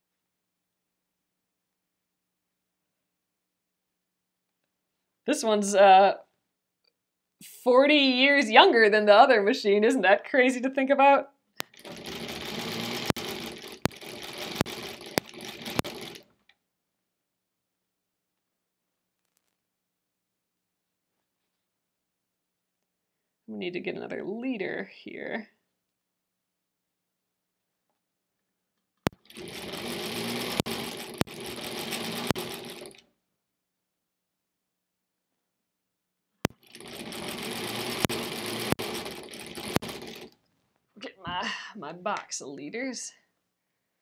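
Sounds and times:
sewing machine running: 11.6 - 16.3, 29.1 - 33.0, 36.5 - 40.4.

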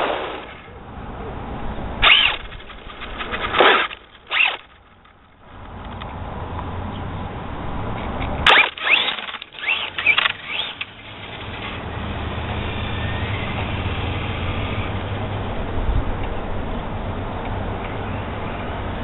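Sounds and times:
electric motor whining: 2.0 - 4.7, 8.5 - 15.1.

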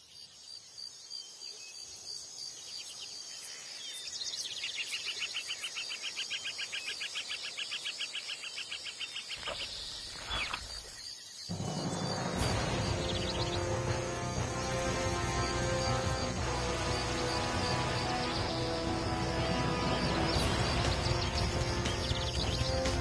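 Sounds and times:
pulsing insect trill: 9.4 - 23.0
music: 11.5 - 23.0.

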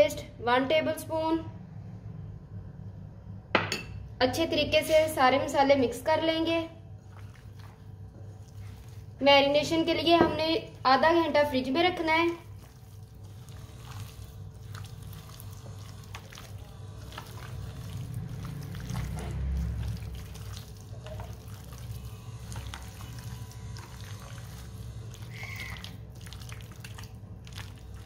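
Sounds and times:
low steady hum: 0.0 - 28.0
hand squishing meat in marinade: 7.0 - 9.8, 11.6 - 28.0.

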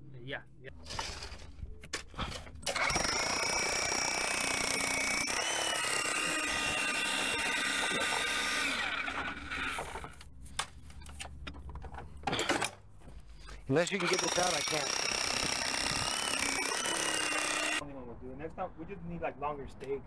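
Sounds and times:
power drill running: 2.2 - 10.1, 13.9 - 17.8.

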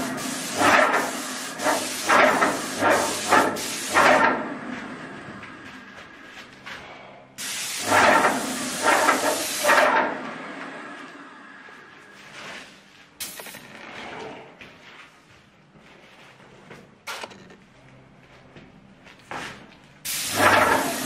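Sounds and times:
paint sprayer hissing: 0.0 - 4.3, 7.4 - 9.9, 20.1 - 21.0.

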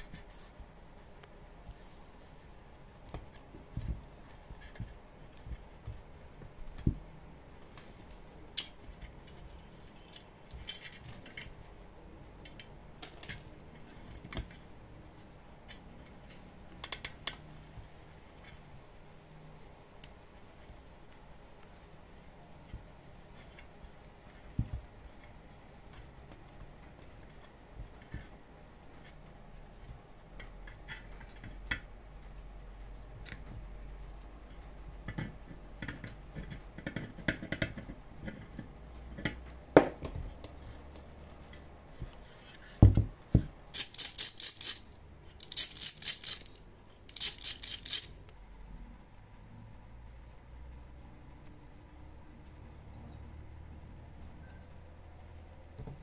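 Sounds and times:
small parts and tools handled: 0.0 - 18.8, 34.5 - 48.4.

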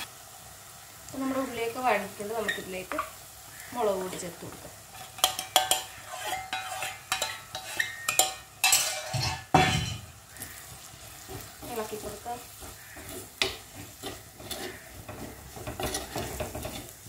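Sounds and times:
oil sizzling: 0.0 - 17.0
spoon scraping cooking pot: 4.9 - 10.0, 11.2 - 17.0.

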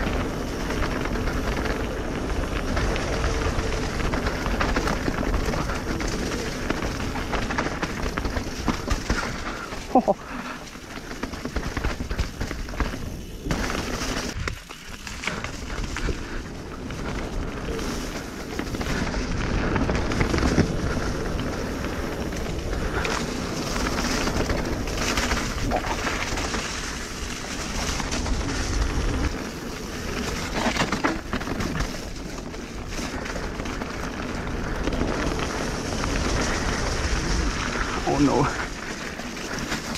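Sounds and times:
wind noise on microphone: 0.0 - 9.7, 11.1 - 39.9
bike knocking and rattling: 0.0 - 39.9
bike tyres on wet leaves and mud: 0.0 - 39.9.

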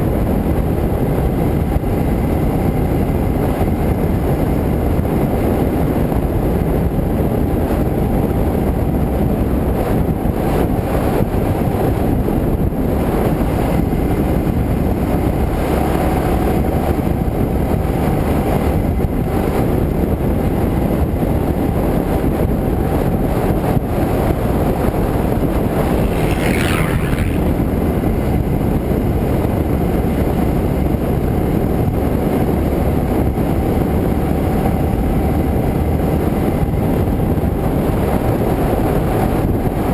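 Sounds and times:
wind rush on microphone: 0.0 - 39.9
high sound rising and falling: 25.7 - 27.8.

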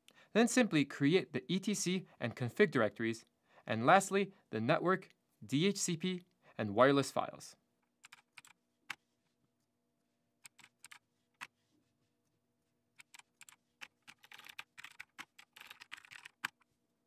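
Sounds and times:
faint keyboard typing: 7.9 - 9.1, 10.4 - 11.6, 12.9 - 16.8.

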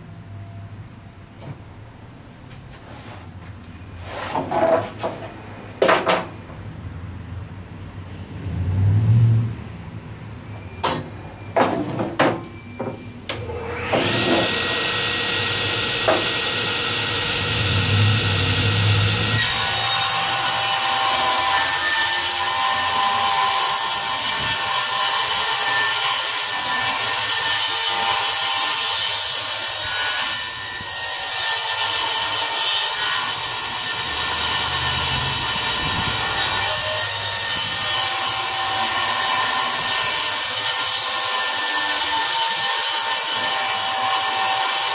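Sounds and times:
table saw running: 13.5 - 44.9.

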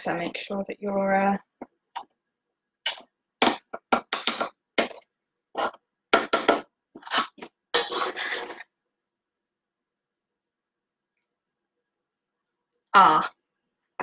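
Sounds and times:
mixing bowl and utensils scraping: 5.6 - 8.7.

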